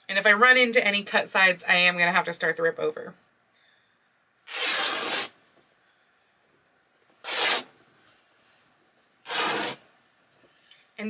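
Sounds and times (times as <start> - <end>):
fabric tearing: 4.5 - 5.4, 7.2 - 7.7, 9.2 - 9.8.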